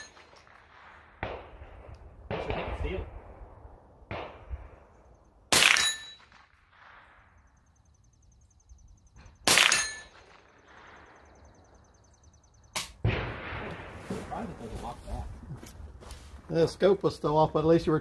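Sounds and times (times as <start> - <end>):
rifle shot crack: 0.0 - 3.5, 4.1 - 4.8, 5.5 - 7.4, 9.4 - 11.3, 12.8 - 14.6.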